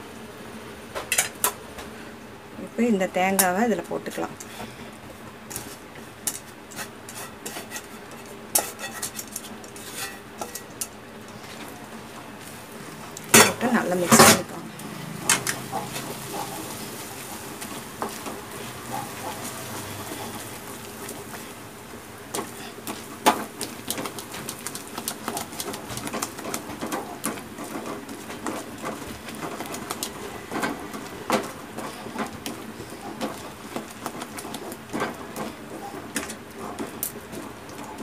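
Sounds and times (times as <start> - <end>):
wooden spatula scraping steel pan: 6.7 - 10.7.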